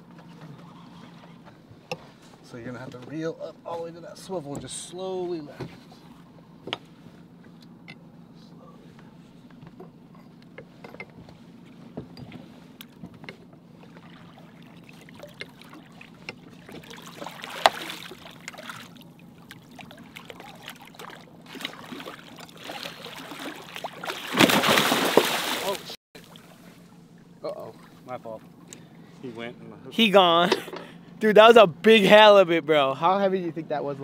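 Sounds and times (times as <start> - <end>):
boat engine idling: 4.3 - 24.3, 24.9 - 34.0
fish thrashing and splashing: 13.8 - 26.7.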